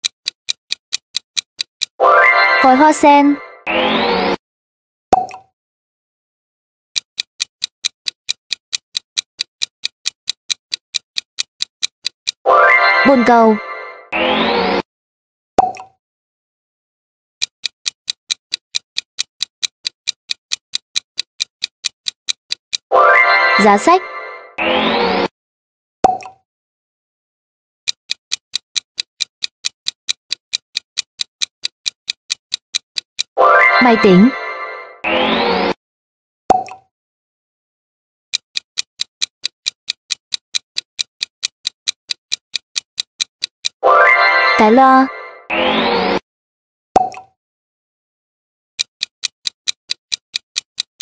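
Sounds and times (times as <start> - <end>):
clock-like timer ticks: 0.0 - 3.2, 7.0 - 13.4, 17.4 - 24.0, 27.8 - 34.9, 38.3 - 43.8, 48.8 - 51.0.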